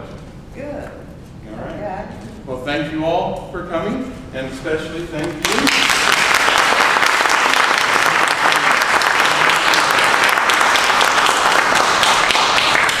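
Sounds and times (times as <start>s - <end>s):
audience clapping: 5.2s - 13.0s.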